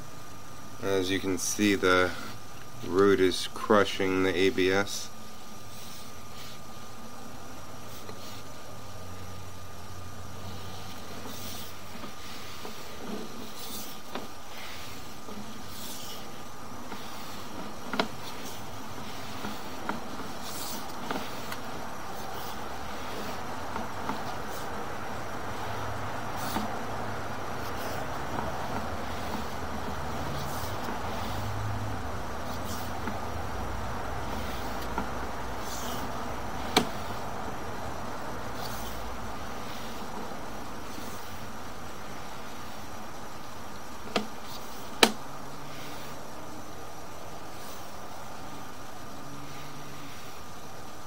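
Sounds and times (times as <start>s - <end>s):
electrical hum and hiss: 0.0s - 51.0s
cable scraping through pipe: 10.4s - 33.6s.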